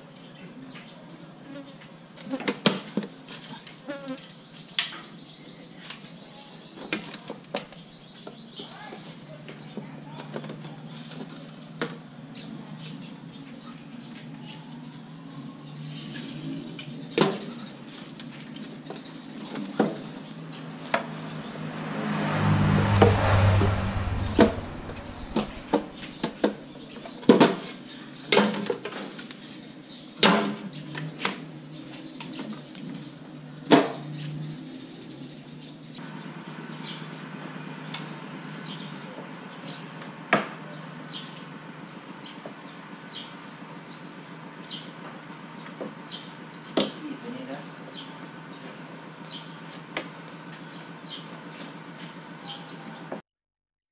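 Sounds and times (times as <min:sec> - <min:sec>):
low rumbling: 0:20.1 - 0:27.0.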